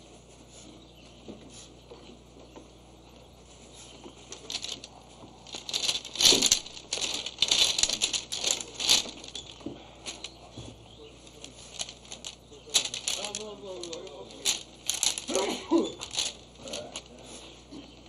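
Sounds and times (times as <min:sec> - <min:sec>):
cloth rustling: 0:03.7 - 0:10.6, 0:11.2 - 0:18.0
arrows clattering: 0:04.3 - 0:10.4, 0:11.2 - 0:17.2.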